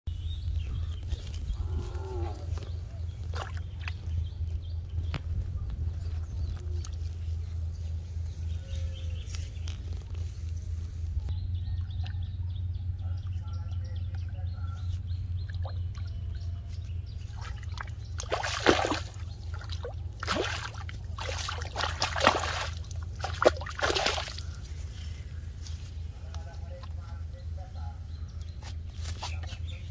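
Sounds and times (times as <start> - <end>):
steady low hum: 0.1 - 29.9
fish thrashing and splashing: 3.1 - 4.6, 17.2 - 24.6.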